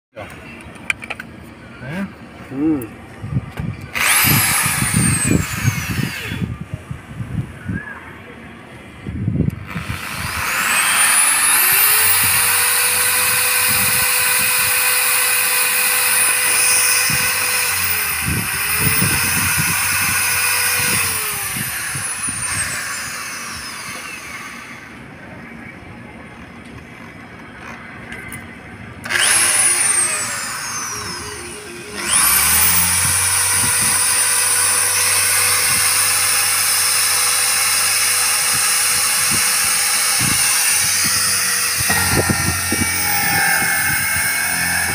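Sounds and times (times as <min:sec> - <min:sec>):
electric drill cutting plastic: 0:03.9 - 0:06.5, 0:09.6 - 0:25.0, 0:29.0 - 0:44.9.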